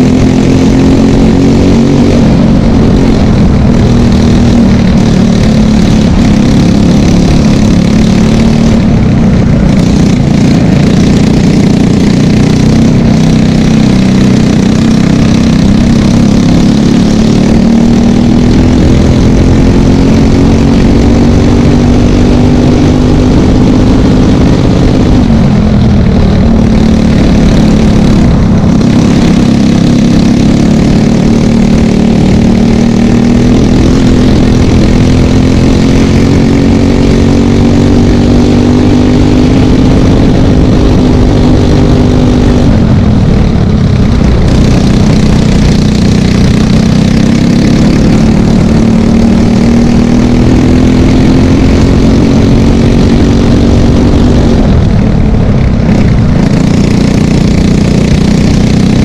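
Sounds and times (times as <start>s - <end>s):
kart engine racing: 0.0s - 59.0s.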